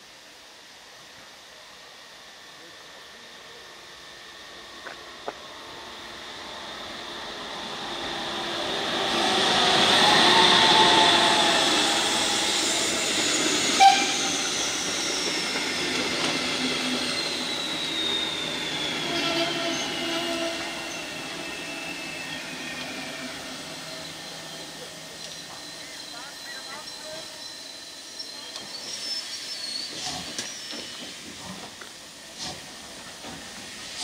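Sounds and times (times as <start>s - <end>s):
steam train passing: 0.0s - 34.0s
high squeal falling in pitch: 9.8s - 15.8s, 17.0s - 30.8s
train whistle: 13.7s - 14.5s, 18.1s - 23.3s.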